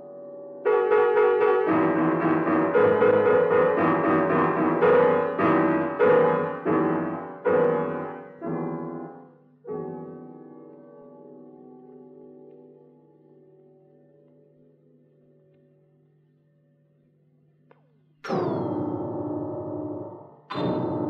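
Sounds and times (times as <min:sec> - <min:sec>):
piano tone clusters struck: 0:18.2 - 0:21.0.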